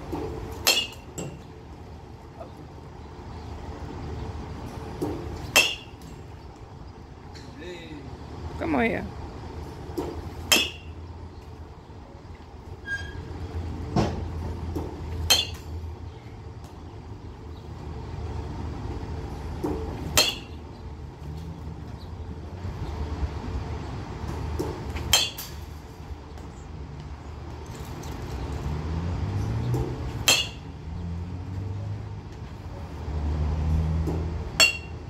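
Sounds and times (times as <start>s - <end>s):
metal bat hitting balls: 0.1s - 1.6s, 4.6s - 6.3s, 9.9s - 11.0s, 13.9s - 15.8s, 19.6s - 20.6s, 24.3s - 25.8s, 29.7s - 30.8s, 34.0s - 35.0s.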